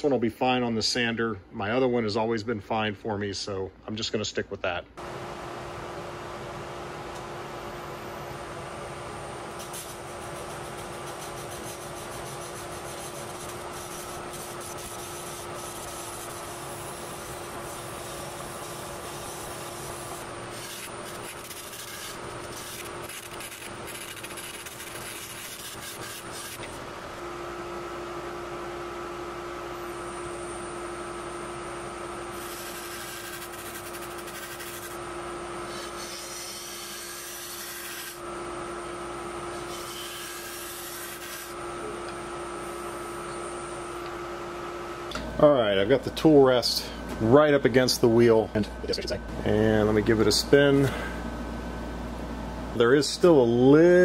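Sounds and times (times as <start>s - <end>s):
turning tool scraping wood: 9.6s - 26.8s
wood lathe humming: 10.6s - 27.2s.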